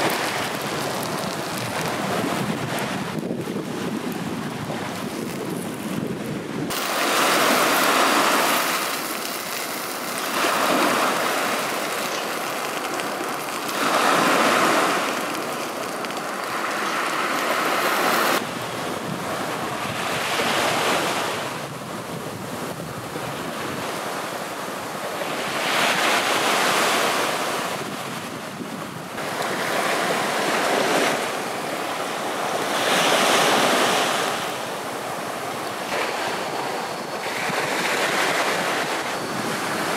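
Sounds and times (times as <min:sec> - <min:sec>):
small waves breaking on sand: 0:00.0 - 0:39.9.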